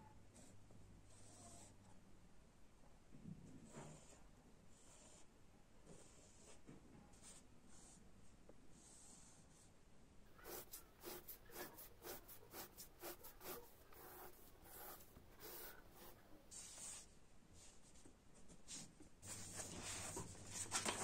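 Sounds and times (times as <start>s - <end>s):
pen scratching on paper: 1.1s - 1.7s, 3.7s - 5.3s, 5.9s - 6.6s, 8.8s - 9.7s, 10.4s - 17.0s.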